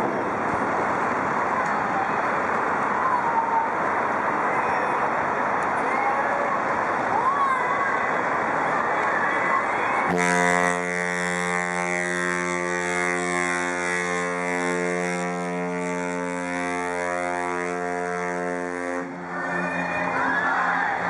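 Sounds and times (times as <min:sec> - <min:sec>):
ship horn long blast: 0:10.0 - 0:19.6.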